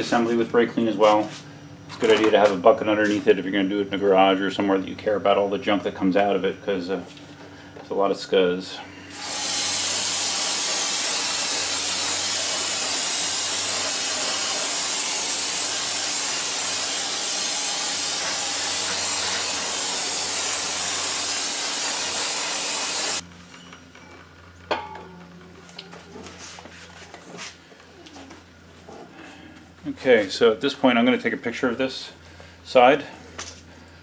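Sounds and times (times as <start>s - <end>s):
aerosol spray hissing: 9.1s - 23.2s.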